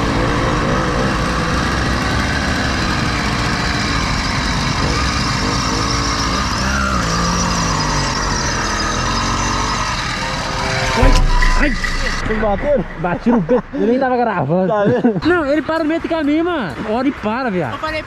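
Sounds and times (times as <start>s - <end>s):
two-stroke engine running: 0.0s - 13.6s.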